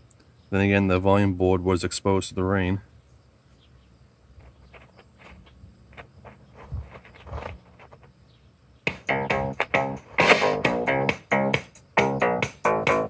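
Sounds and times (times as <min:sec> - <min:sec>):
music from tape deck speakers: 0:08.9 - 0:13.0.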